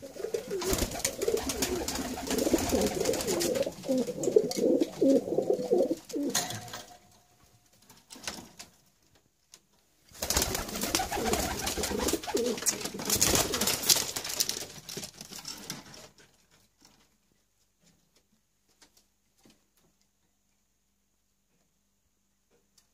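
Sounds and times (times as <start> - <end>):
pigeons cooing: 0.0 - 6.4, 10.7 - 13.6.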